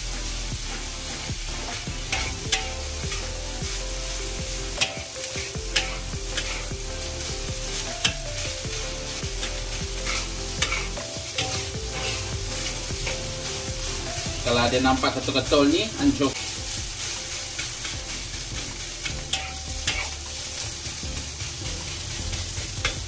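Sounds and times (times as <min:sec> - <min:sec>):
hot oil sizzling in a wok: 0:00.0 - 0:23.0
metal spatula scraping a wok: 0:00.1 - 0:23.0
spatula clinking on wok: 0:19.2 - 0:20.4.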